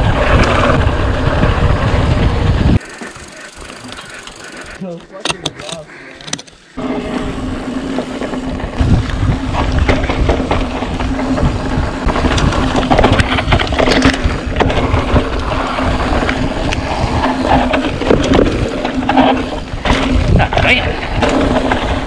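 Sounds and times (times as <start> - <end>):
wind on microphone: 0.0 - 4.0, 7.0 - 22.0
chain and suspension rattling: 2.8 - 6.6.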